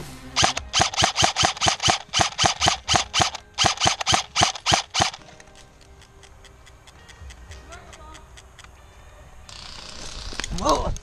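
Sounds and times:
airsoft rifle firing single shots: 0.4s - 5.3s
faint distant shots: 0.4s - 5.4s.

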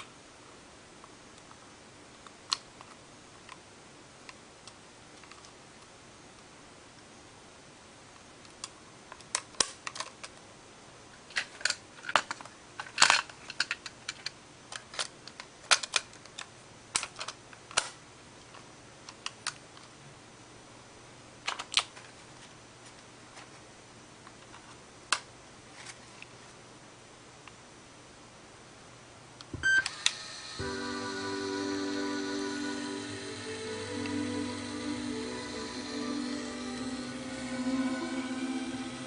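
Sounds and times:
plastic clicks and clatters: 8.6s - 10.4s, 11.3s - 19.9s, 21.4s - 22.1s.

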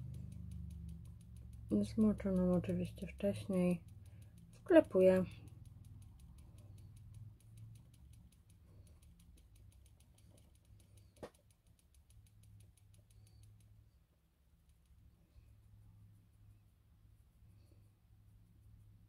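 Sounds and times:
sharp click: 0.0s - 13.7s
low steady hum: 0.0s - 19.0s
makeup sponge dabbing on skin: 0.0s - 19.0s.

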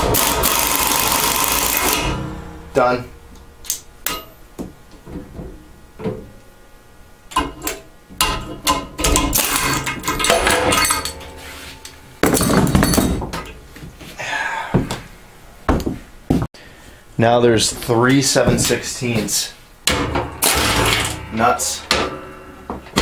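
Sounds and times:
metal clanking and clinking: 1.8s - 6.4s, 7.3s - 11.4s, 12.2s - 13.6s, 19.9s - 23.0s.

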